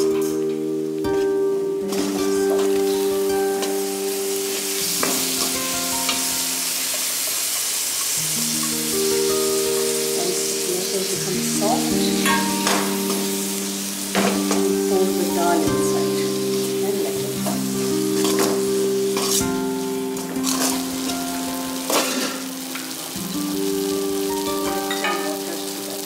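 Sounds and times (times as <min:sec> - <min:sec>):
tomatoes sizzling in hot oil: 0:00.0 - 0:26.0
metal ladle scraping a pan: 0:20.4 - 0:21.2.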